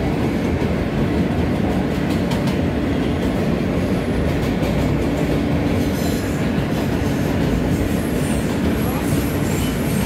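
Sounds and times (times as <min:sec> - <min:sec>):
train wheels rumbling on rail: 0:00.0 - 0:10.0
faint high wheel squeal: 0:07.9 - 0:10.0.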